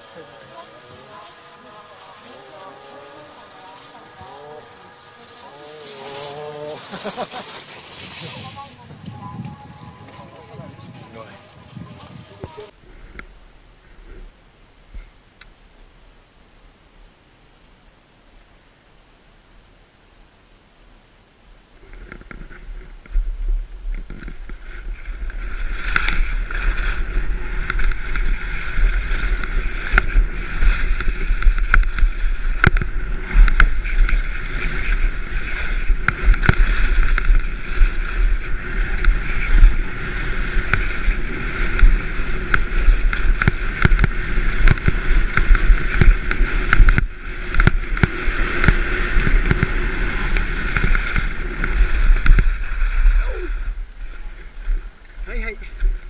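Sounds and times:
ski clicks: 0.0s - 8.7s, 21.7s - 56.0s
skis scraping over snow: 0.0s - 13.2s, 21.6s - 56.0s
wind buffeting microphone: 8.0s - 12.8s, 22.0s - 56.0s.

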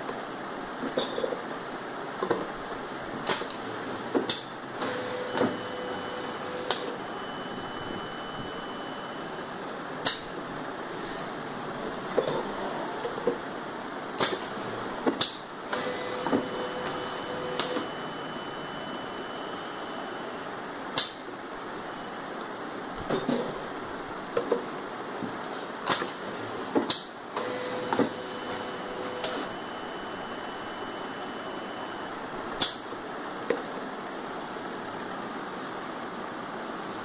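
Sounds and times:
steady machine hum: 0.0s - 37.0s
motor whine: 4.5s - 9.4s, 15.4s - 20.5s, 27.2s - 32.3s.

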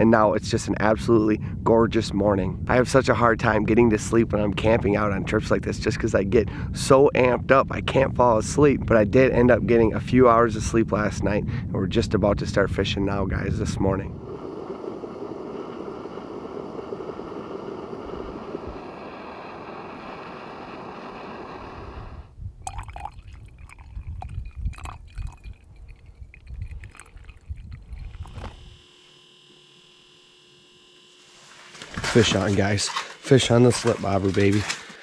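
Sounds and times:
moka pot hissing: 14.2s - 32.4s
coffee pouring into cup: 22.6s - 28.6s.

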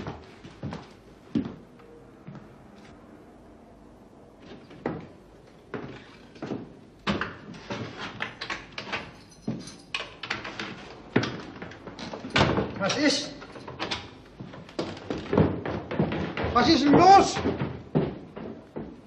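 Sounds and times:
footsteps on wooden stairs: 0.0s - 2.5s, 4.4s - 8.2s, 10.7s - 12.8s, 13.5s - 19.0s.

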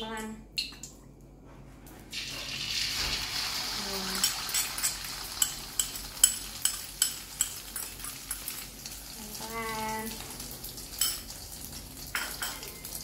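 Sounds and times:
egg sizzling in oil: 2.1s - 9.4s
metal spoon clinking on bowl: 4.2s - 8.5s, 11.0s - 11.3s, 12.1s - 13.0s.

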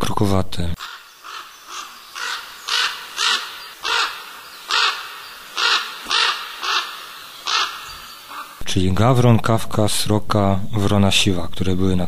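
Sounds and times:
crows cawing: 0.8s - 8.6s.

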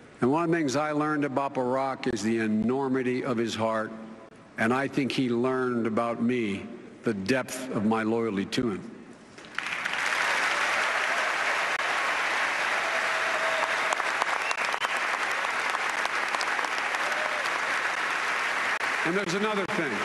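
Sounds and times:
crowd applauding: 9.4s - 20.0s.

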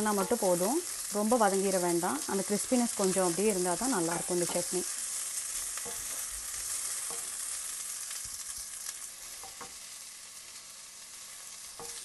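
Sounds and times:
vegetables sizzling in hot oil: 0.0s - 12.0s
spoon knocking against pan: 7.0s - 7.4s, 9.4s - 9.8s.

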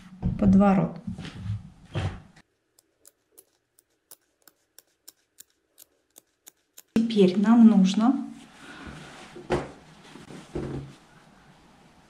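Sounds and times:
scissors snipping fabric: 2.8s - 7.0s.

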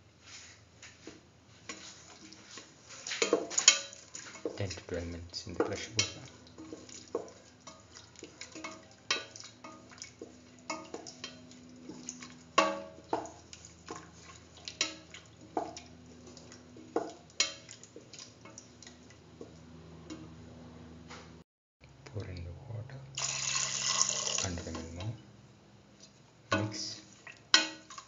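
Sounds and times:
wooden spatula scraping metal pot: 1.6s - 19.1s, 26.0s - 28.0s.

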